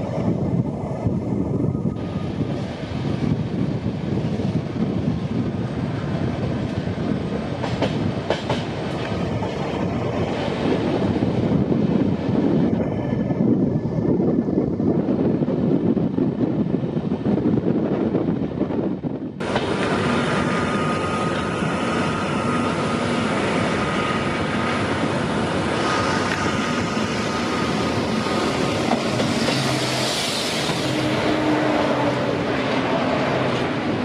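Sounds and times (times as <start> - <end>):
passing train rushing: 0.0 - 34.0
train clatter and rumble: 0.0 - 34.0
wind buffeting microphone: 0.0 - 34.0
train wheels squealing: 19.9 - 32.2.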